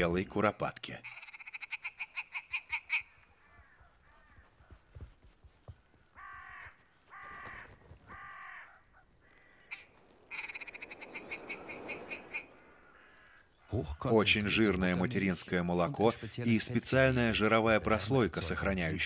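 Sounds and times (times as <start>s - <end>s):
ptarmigan rattling clucks: 1.0s - 3.2s, 9.6s - 13.1s
ptarmigan croaking calls: 1.0s - 4.4s, 6.1s - 19.0s.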